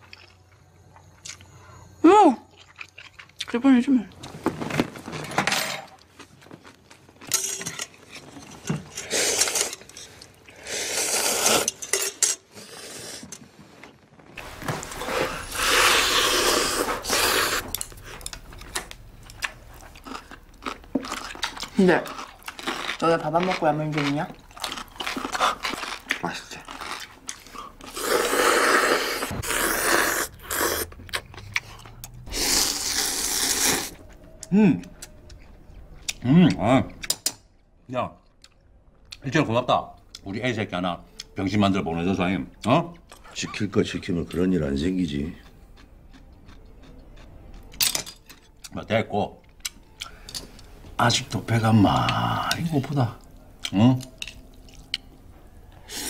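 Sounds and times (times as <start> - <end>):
noodles being slurped: 8.9 - 11.9, 14.4 - 17.8, 23.7 - 31.0, 32.3 - 34.0.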